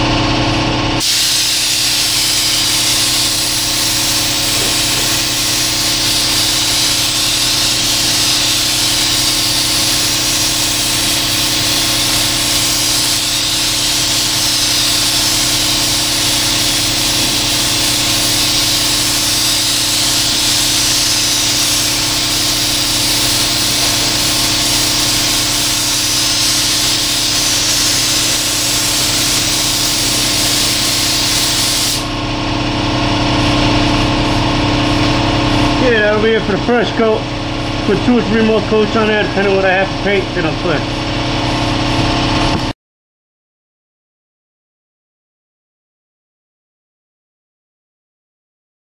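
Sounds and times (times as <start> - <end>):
machine hum: 0.0 - 42.7
paint spray gun hissing: 1.0 - 32.1.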